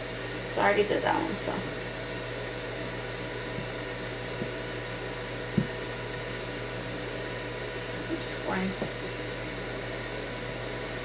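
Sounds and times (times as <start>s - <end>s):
steady background hum and hiss: 0.0s - 11.0s
soft knock: 5.5s - 5.8s.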